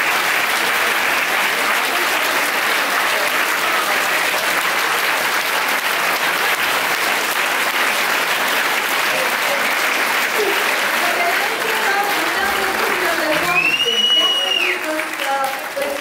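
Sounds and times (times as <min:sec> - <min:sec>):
large crowd clapping: 0:00.0 - 0:16.0.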